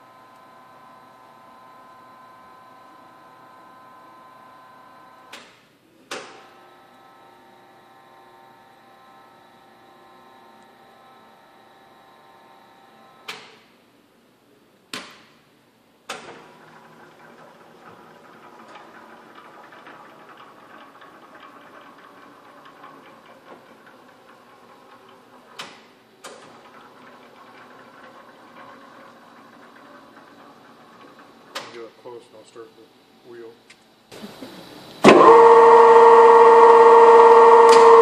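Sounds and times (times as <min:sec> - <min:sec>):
grinder motor hum and whine: 0:00.0 - 0:05.3, 0:06.6 - 0:13.3, 0:34.2 - 0:38.0.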